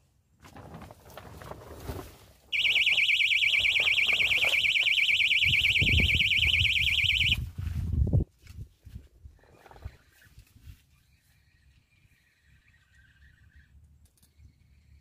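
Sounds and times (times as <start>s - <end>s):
electronic alarm warbling: 2.6s - 7.4s.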